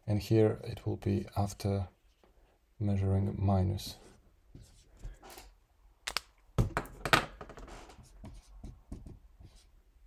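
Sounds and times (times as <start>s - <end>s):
marker scratching on whiteboard: 7.6s - 9.8s.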